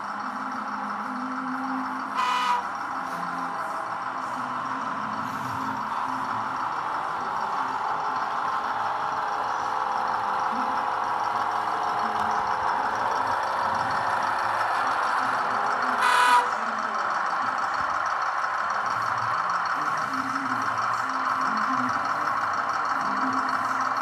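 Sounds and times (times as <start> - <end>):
diesel engine from small speaker: 0.0 - 24.0
train horn toot: 2.2 - 2.8, 16.0 - 16.6.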